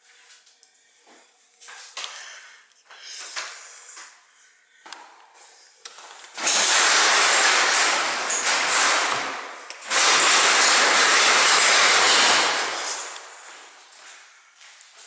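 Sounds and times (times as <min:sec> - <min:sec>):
garage door opener rumbling: 0:06.3 - 0:13.6.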